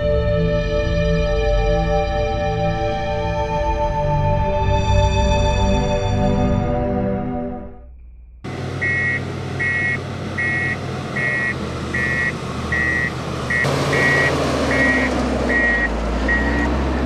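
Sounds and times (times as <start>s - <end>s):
diesel engines running: 8.0s - 17.0s
reversing alarm beeping: 8.8s - 17.0s.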